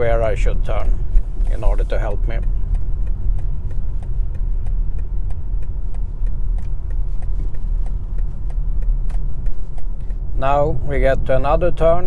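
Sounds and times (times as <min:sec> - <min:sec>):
road and tyre rumble: 0:00.0 - 0:12.0
turn signal ticking: 0:00.0 - 0:12.0.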